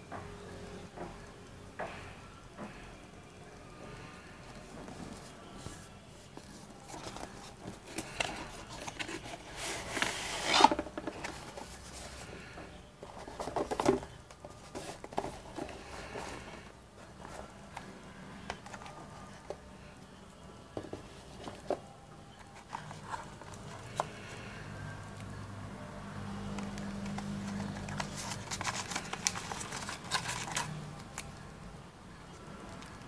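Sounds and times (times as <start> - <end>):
cardboard box being opened: 6.4 - 12.2, 13.0 - 16.6, 26.7 - 31.2.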